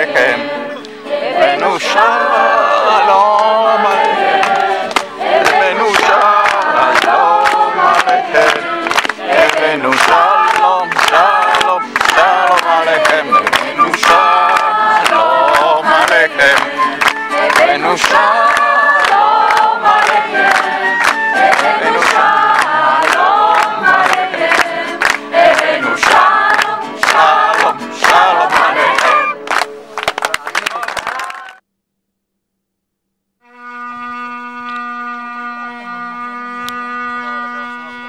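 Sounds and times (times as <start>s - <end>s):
group singing in chorus: 0.0s - 29.4s
acoustic guitar: 0.0s - 30.4s
hands clapping on the beat: 2.9s - 31.6s
flute: 10.2s - 15.6s, 16.2s - 23.7s, 25.6s - 26.8s, 28.8s - 29.6s, 33.5s - 38.0s.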